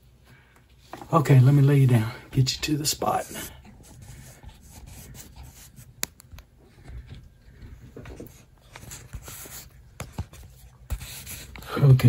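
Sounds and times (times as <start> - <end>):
rubbing and handling noise: 0.1 - 12.0.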